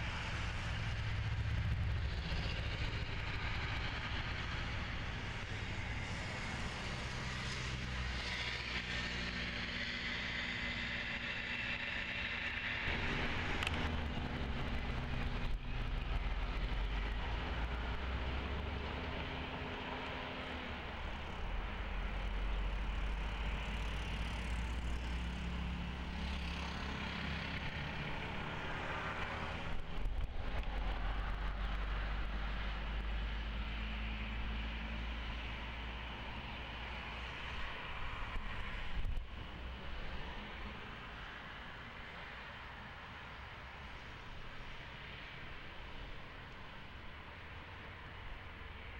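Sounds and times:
jet engine roar with high whine: 0.0 - 22.6
jet engines idling low rumble: 0.0 - 48.9.

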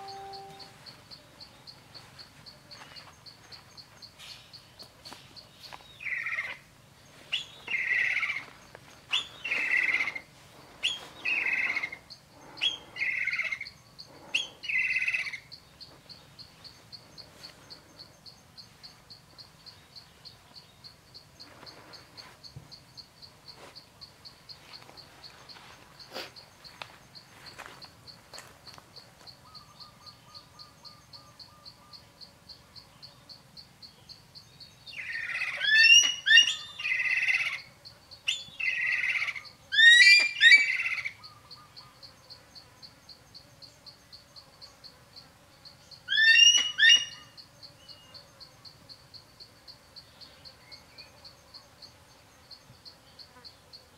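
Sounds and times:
bird calling sweeping notes: 0.0 - 0.8
insect pulsing chirp: 0.0 - 53.9.

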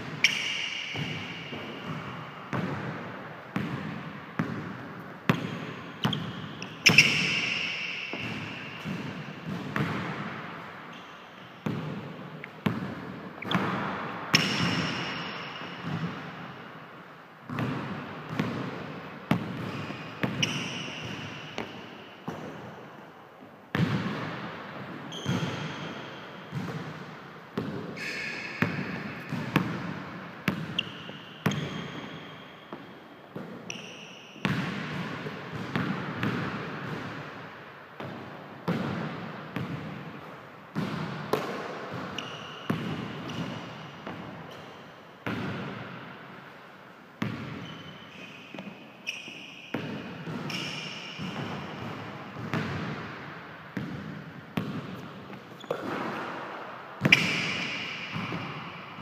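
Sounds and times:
sneakers squeaking on court: 0.1 - 16.7, 17.5 - 22.8, 23.7 - 37.3, 40.8 - 46.1, 47.2 - 59.0
basketball bouncing on hardwood floor: 17.5 - 22.4.

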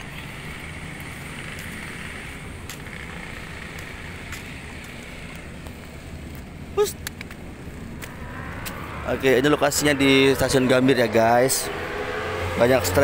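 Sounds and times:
distant road traffic rumble: 0.0 - 13.0.

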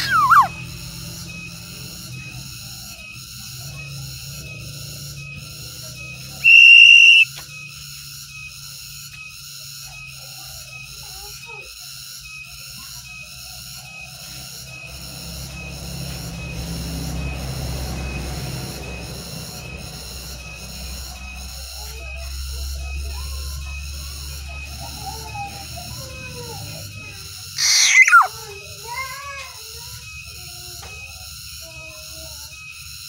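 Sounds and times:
bird harsh call: 0.0 - 0.6, 6.4 - 7.3, 27.6 - 28.4
soft whistled bird notes: 0.0 - 0.8, 6.4 - 7.4, 27.6 - 28.3.

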